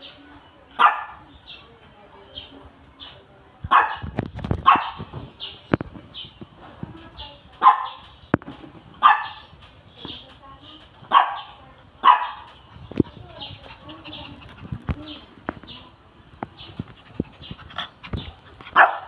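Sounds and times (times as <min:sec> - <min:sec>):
dog barking: 0:00.8 - 0:01.2, 0:03.7 - 0:05.0, 0:07.6 - 0:08.0, 0:09.0 - 0:09.5, 0:11.1 - 0:12.5, 0:18.8 - 0:19.0.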